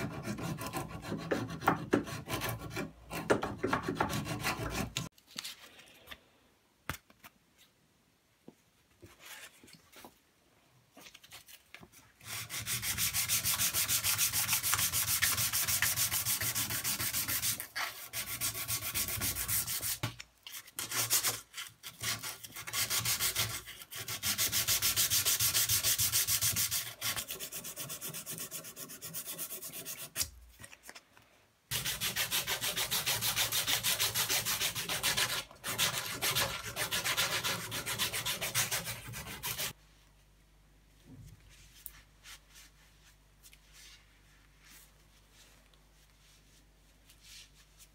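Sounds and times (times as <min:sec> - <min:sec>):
sandpaper rubbing on wood: 0:12.3 - 0:20.0, 0:31.7 - 0:39.8.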